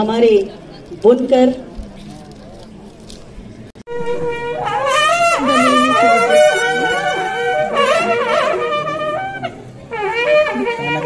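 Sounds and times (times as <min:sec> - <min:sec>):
held drone note: 0:03.9 - 0:11.0
wind instrument melody: 0:03.9 - 0:11.0.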